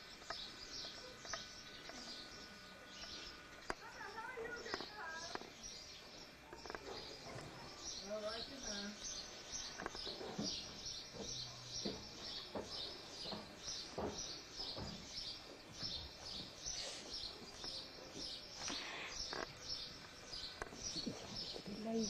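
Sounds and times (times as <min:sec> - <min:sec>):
small birds chirping: 0:00.0 - 0:22.0
soft thuds: 0:10.0 - 0:15.2.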